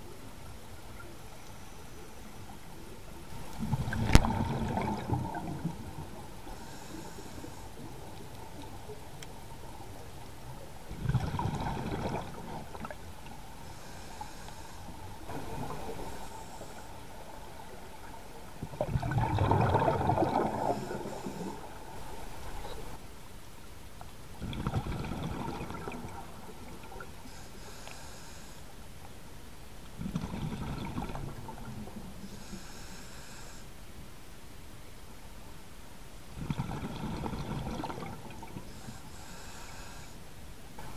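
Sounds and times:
exhaled bubbles gurgling: 0:03.3 - 0:07.0, 0:10.6 - 0:13.1, 0:17.0 - 0:23.0, 0:24.4 - 0:27.1, 0:30.0 - 0:32.2, 0:36.4 - 0:38.8
hissing regulator inhalations: 0:06.5 - 0:07.9, 0:13.6 - 0:17.0, 0:20.6 - 0:22.2, 0:27.2 - 0:28.7, 0:32.2 - 0:33.7, 0:38.7 - 0:40.2.

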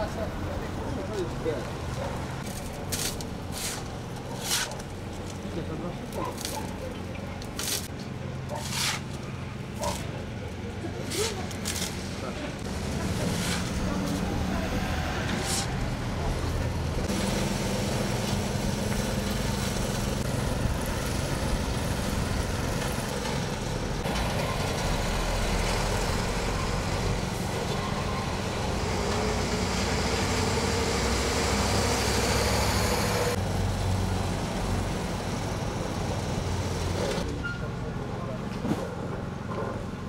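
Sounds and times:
heavy traffic passing: 0:00.0 - 0:40.0
road roller engine: 0:00.0 - 0:40.0
truck idling: 0:15.8 - 0:37.2.

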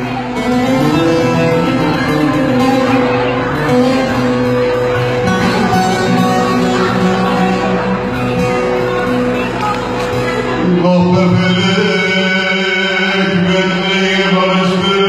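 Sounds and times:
live instrumental band music: 0:00.0 - 0:11.1.

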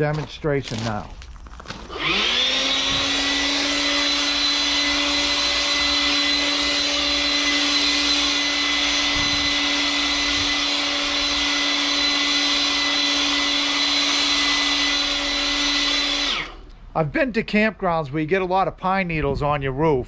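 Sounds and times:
handheld blower motor whine: 0:01.8 - 0:16.8.

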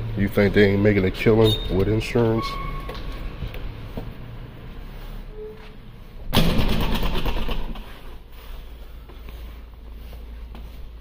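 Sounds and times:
vehicle engine bursting: 0:06.3 - 0:08.3.

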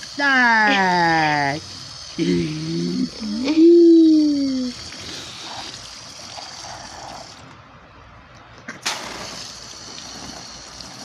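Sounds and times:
hose water splashing on tarp: 0:04.6 - 0:07.4, 0:08.8 - 0:11.0.

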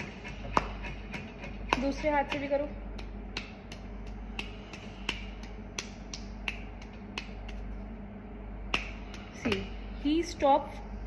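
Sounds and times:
hand slapping on palm: 0:02.9 - 0:07.8, 0:08.7 - 0:09.7.

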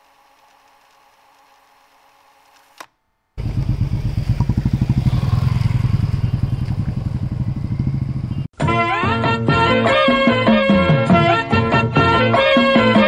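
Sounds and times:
motorcycle engine running: 0:03.4 - 0:08.5.

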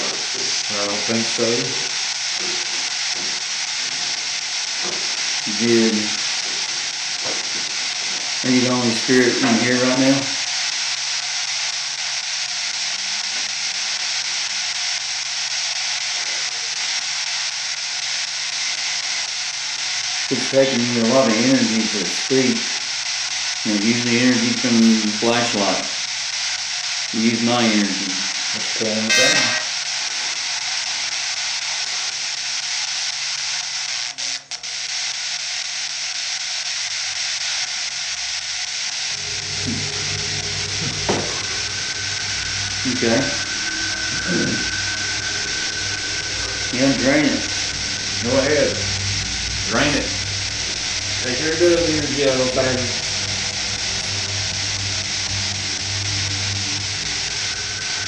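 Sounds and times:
static hiss: 0:00.0 - 0:58.0
low hum: 0:38.7 - 0:58.0.

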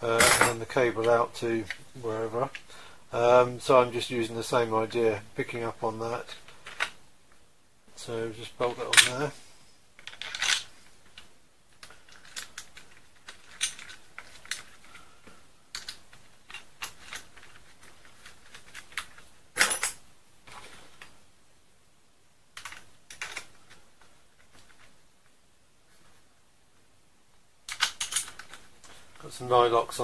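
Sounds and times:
metal parts clicking and tapping: 0:10.0 - 0:15.0, 0:15.7 - 0:20.0, 0:22.6 - 0:24.9, 0:27.7 - 0:28.7.

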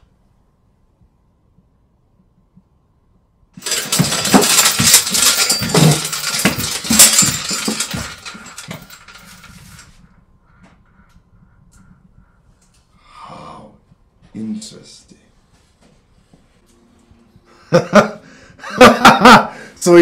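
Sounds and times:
noisy rush with clattering knocks: 0:03.6 - 0:09.9.

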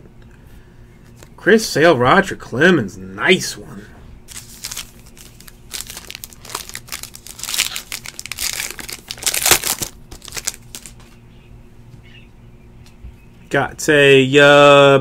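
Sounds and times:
plastic wrapper crinkling: 0:04.3 - 0:11.2.

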